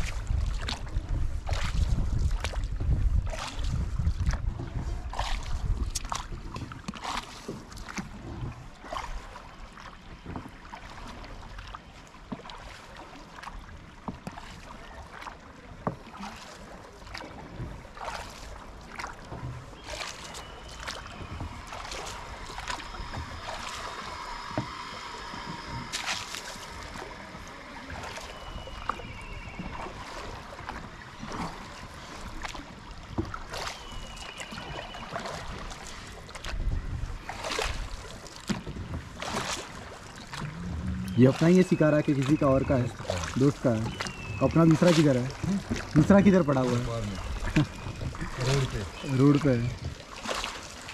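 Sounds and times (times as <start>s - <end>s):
paddle splashing in water: 0.0s - 50.9s
water lapping against hull: 0.0s - 50.9s.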